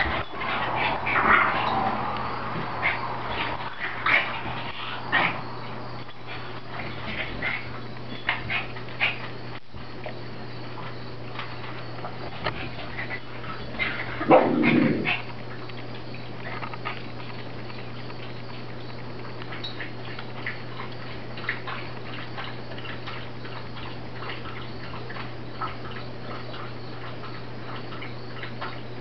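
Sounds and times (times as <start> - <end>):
steady low hum: 0.0 - 29.0
dog vocalisation: 12.4 - 18.3.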